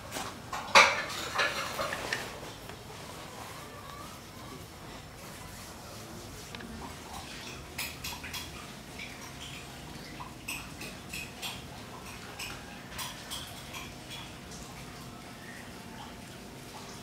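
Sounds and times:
faint room hum: 0.0s - 17.0s
dishes and utensils clinking: 0.1s - 2.5s, 7.1s - 9.8s, 10.4s - 14.5s.

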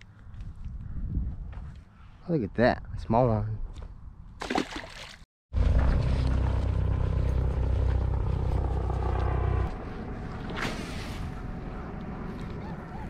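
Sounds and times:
wind buffeting microphone: 0.2s - 1.9s
fish splashing into water: 4.4s - 6.6s.

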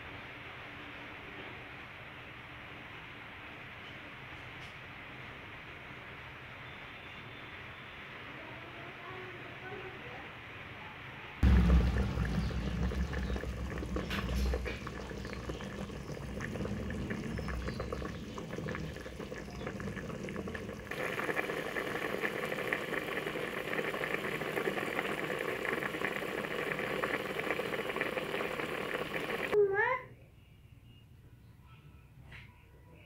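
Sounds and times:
low rumble: 11.4s - 21.8s
curry bubbling in a pot: 11.4s - 29.6s.

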